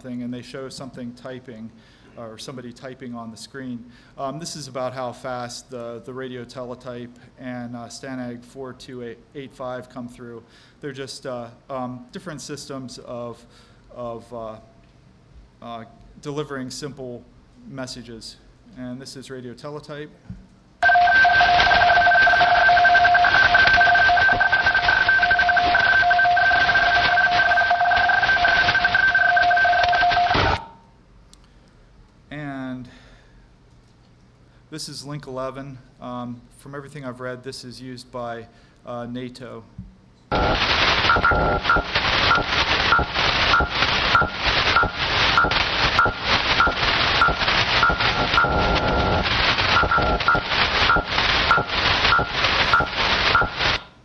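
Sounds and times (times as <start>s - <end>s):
radio hiss and static crackle: 20.8s - 30.7s, 40.3s - 54.0s
two-tone radio data signal: 20.8s - 30.7s, 40.3s - 53.9s.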